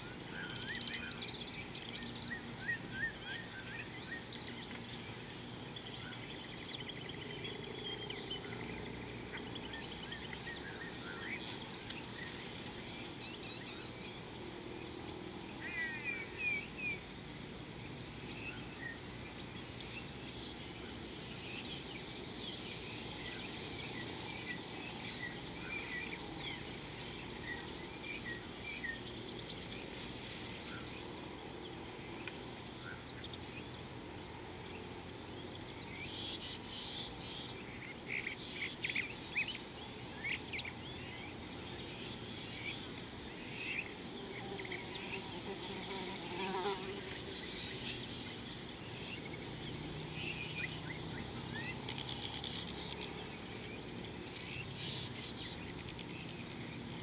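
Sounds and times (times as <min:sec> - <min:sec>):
outdoor background noise: 0:00.0 - 0:57.0
birds chirping and calling: 0:35.4 - 0:57.0.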